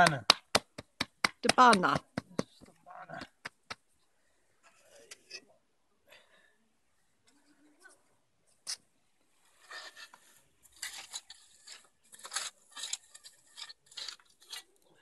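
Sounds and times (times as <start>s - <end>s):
stones and metal bowl scraping: 9.4s - 15.0s.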